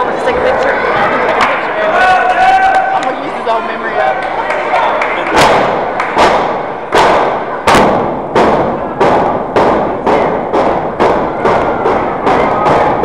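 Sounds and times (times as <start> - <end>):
loud echoing thuds: 5.3 - 13.0.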